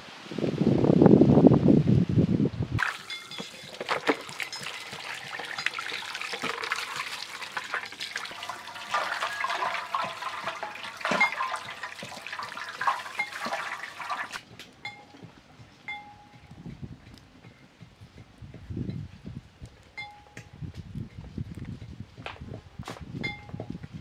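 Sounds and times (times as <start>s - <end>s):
hose water splashing in metal tray: 2.8s - 14.4s.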